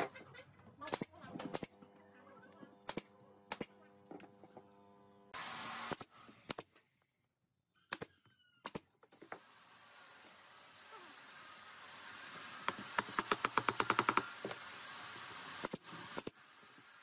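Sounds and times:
nail gun firing: 2.9s - 3.7s, 5.8s - 6.8s, 15.6s - 16.4s.

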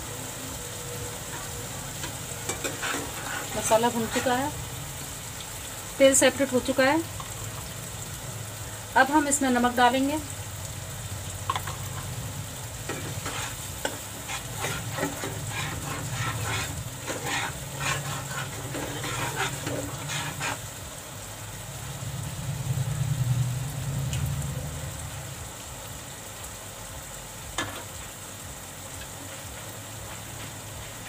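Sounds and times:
masala sizzling in oil: 0.0s - 31.0s
metal spatula scraping pan: 1.2s - 4.6s, 12.8s - 20.7s.

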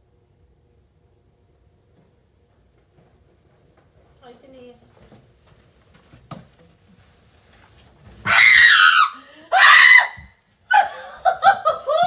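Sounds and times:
woman screaming: 8.3s - 10.9s.

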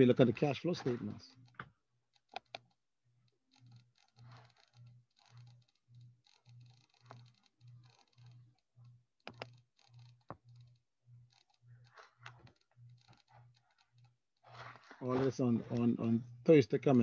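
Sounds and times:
computer mouse clicks: 0.8s - 15.9s
soft keyboard clatter: 9.2s - 16.2s.

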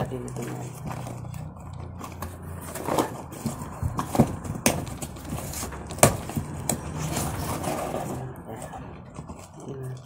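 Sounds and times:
cardboard box knocks and scrapes: 2.6s - 8.2s.

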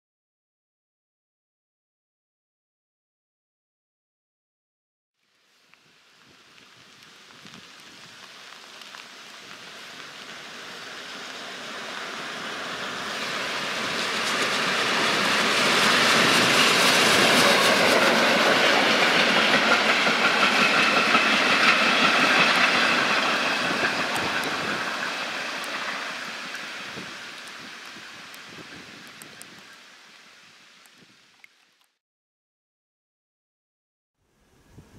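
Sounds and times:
steam locomotive passing: 5.8s - 31.5s
wheels clattering on rails: 10.0s - 29.7s.

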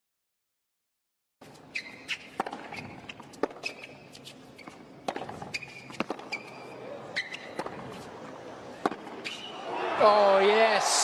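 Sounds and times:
shoe squeaks: 1.4s - 8.1s, 9.2s - 9.6s
tennis racquet hitting ball: 1.8s - 8.1s, 8.8s - 9.6s
tennis ball bouncing: 1.8s - 9.5s.

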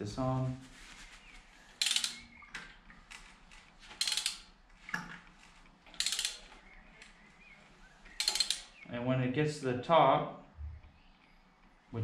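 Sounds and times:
socket ratchet clicking: 1.8s - 2.4s, 4.0s - 4.5s, 5.9s - 6.5s, 8.2s - 8.8s.

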